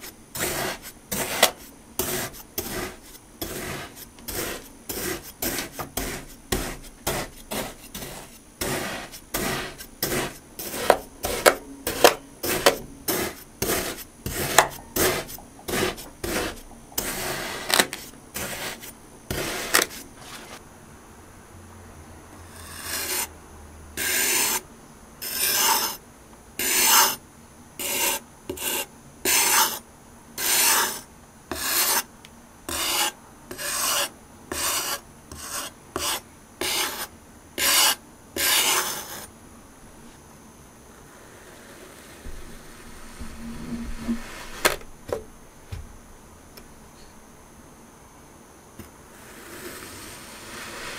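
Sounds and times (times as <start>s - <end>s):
knife slicing through sand: 0.4s - 20.6s.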